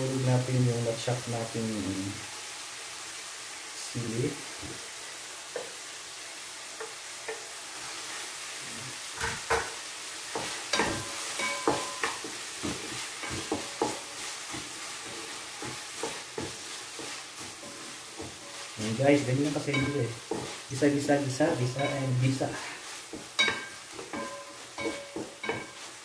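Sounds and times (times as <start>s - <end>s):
vegetables sizzling in oil: 0.0s - 26.0s
spatula knocking and scraping pan: 9.2s - 26.0s.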